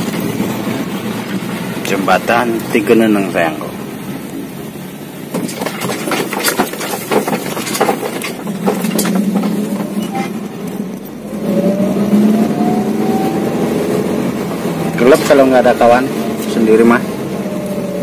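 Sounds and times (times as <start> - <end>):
ambulance engine running: 0.0 - 18.0
clatters and knocks: 5.2 - 11.1.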